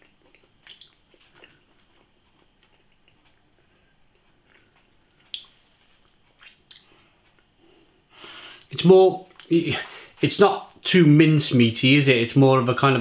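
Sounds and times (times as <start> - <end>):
faint chewing: 0.0 - 9.9.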